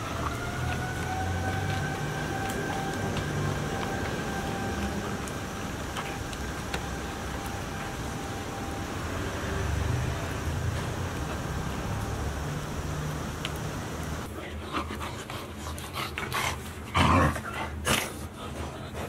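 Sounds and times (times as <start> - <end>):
passing vehicles rumble: 0.0 - 14.3.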